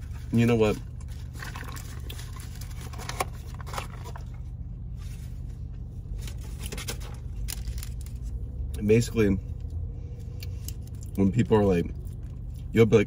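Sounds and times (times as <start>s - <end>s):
paper food packaging rustling: 0.0s - 8.4s
low hum inside car: 0.0s - 13.0s.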